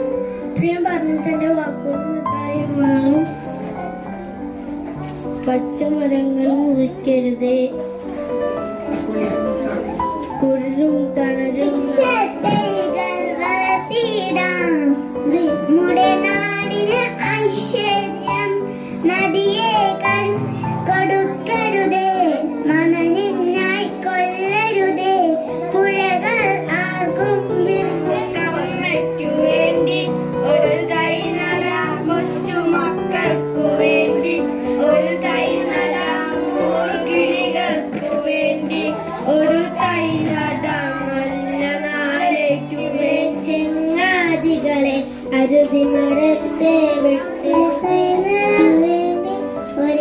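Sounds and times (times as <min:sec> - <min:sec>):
child singing: 0:10.4 - 0:50.0.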